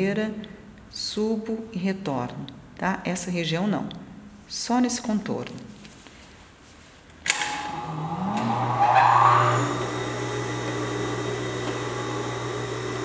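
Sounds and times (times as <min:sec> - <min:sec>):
sewing machine motor humming: 0:07.4 - 0:13.0.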